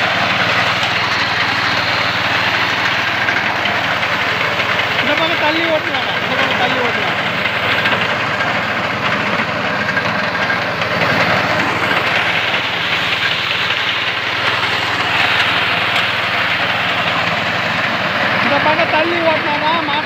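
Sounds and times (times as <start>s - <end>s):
reaper engine running: 0.0s - 20.0s.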